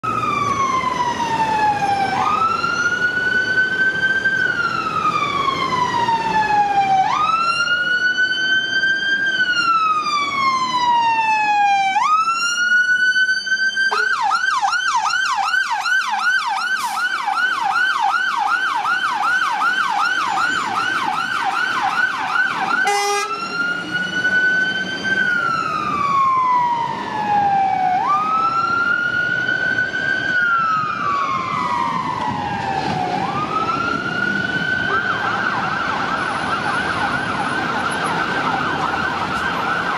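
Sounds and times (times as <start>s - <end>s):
fire engine siren wailing and yelping: 0.0s - 39.9s
truck engine: 12.0s - 39.9s.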